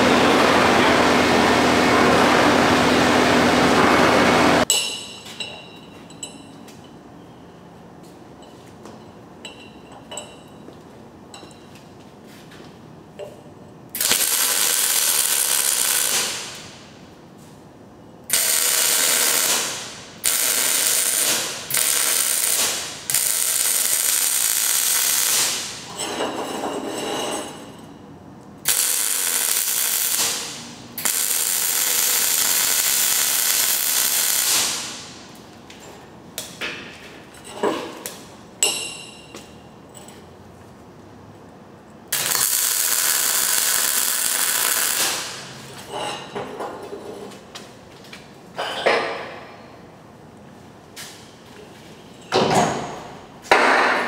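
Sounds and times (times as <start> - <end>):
light metal clicks and clinks: 4.7 - 7.0
welding arc sizzling: 14.0 - 16.9, 18.3 - 25.9, 28.6 - 35.4, 42.1 - 45.7.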